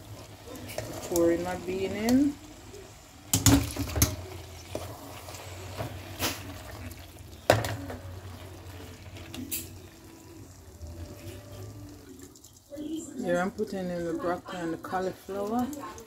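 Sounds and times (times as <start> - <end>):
beans sloshing in metal pot: 3.4 - 10.0.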